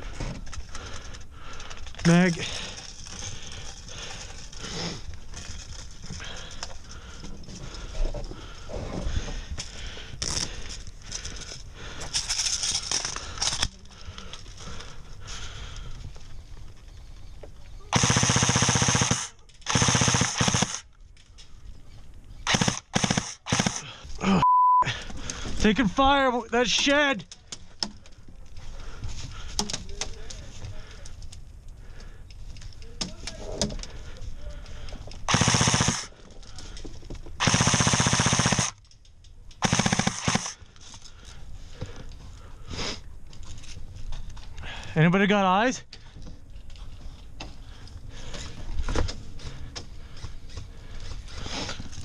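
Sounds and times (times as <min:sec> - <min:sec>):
airsoft gun bursts: 0:17.9 - 0:20.9, 0:22.4 - 0:24.0, 0:35.3 - 0:36.2, 0:37.4 - 0:38.8, 0:39.6 - 0:40.6
electric rifle rapid firing: 0:18.0 - 0:20.8, 0:22.5 - 0:23.9, 0:35.3 - 0:36.1, 0:37.4 - 0:38.8, 0:39.6 - 0:40.6.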